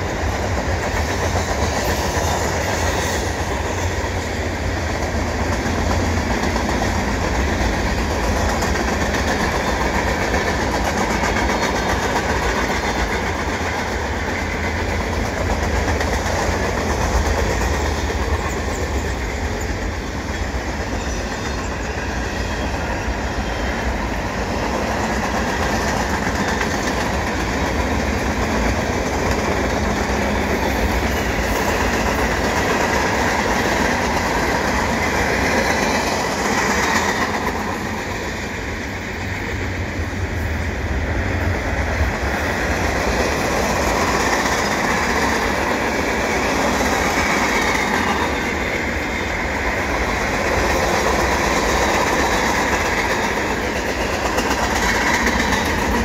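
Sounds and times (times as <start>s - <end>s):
train wheels on rails: 0.0s - 56.0s.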